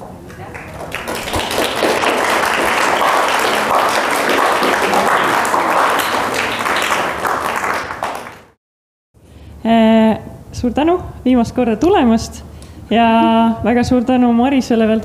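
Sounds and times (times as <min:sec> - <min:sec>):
audience applauding: 0:00.3 - 0:08.6.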